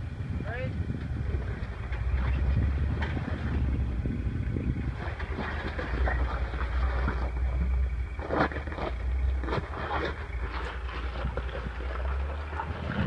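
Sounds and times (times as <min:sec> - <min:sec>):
engine low rumble: 0:00.0 - 0:13.0
tyres scraping on rock: 0:04.8 - 0:13.0.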